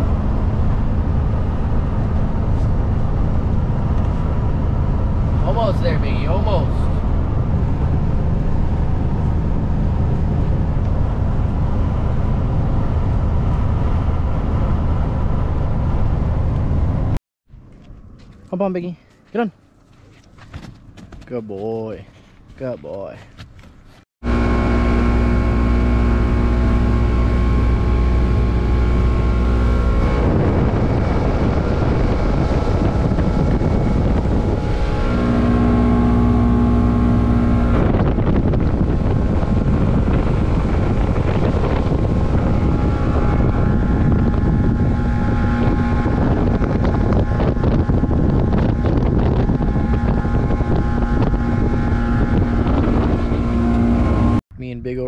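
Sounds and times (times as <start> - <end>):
water along hull: 0.0 - 17.2, 23.4 - 54.4
motorboat engine running: 0.0 - 18.4, 23.8 - 54.4
wind on microphone: 24.3 - 54.4.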